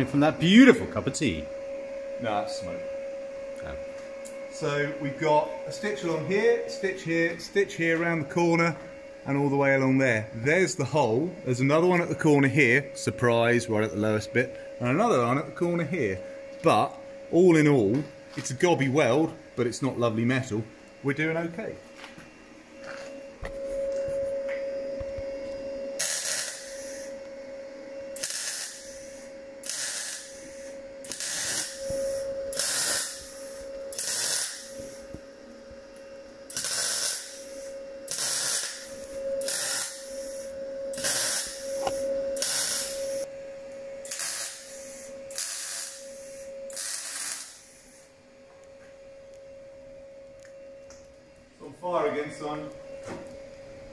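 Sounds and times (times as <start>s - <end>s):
welding arc bursts: 26.0s - 27.1s, 28.2s - 35.1s, 36.5s - 43.3s, 44.0s - 48.1s.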